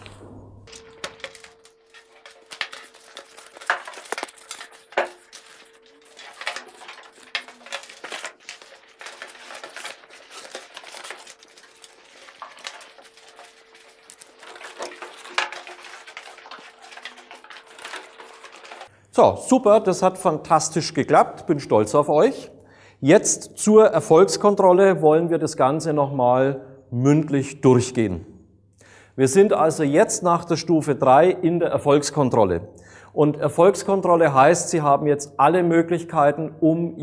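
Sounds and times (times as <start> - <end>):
packaging rustling: 0.0 - 18.9.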